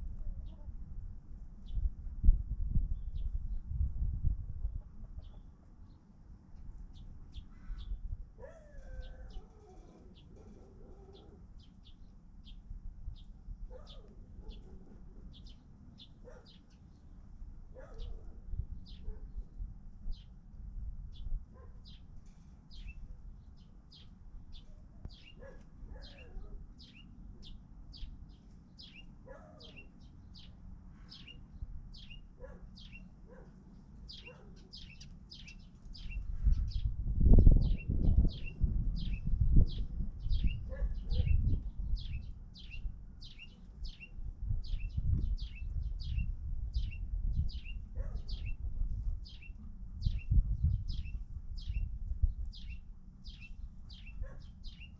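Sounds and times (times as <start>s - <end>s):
chickens chirping: 4.6s - 5.5s
chickens clucking: 4.7s - 5.5s.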